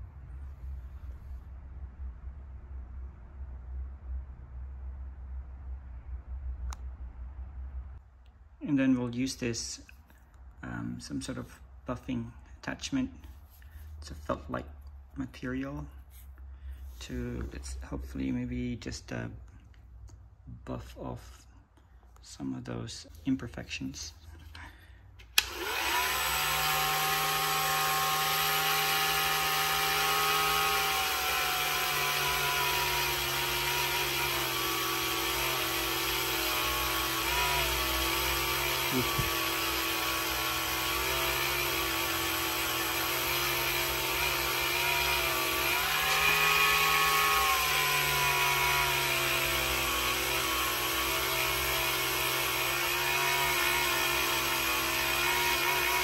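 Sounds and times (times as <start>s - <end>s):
rotary tool buffing whine: 25.3s - 56.0s.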